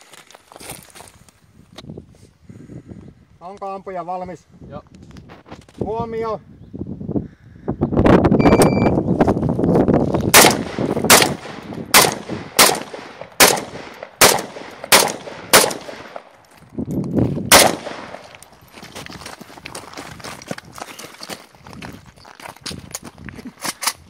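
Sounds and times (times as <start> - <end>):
footsteps on gravel: 0.0 - 1.4, 16.3 - 24.0
electronic timer beep: 8.4 - 9.0
rifle shots: 10.3 - 16.3, 17.5 - 18.4.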